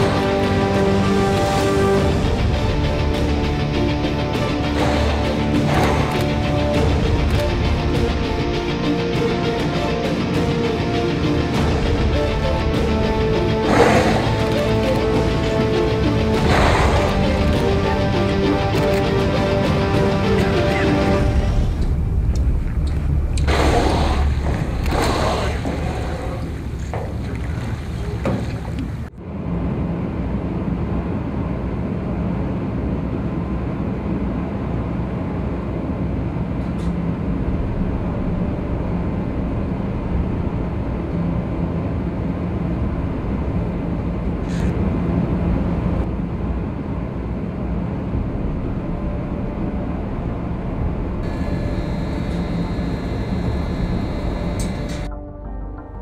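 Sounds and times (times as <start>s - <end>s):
ship engines droning: 0.0s - 55.2s
thin high whine: 48.6s - 55.1s.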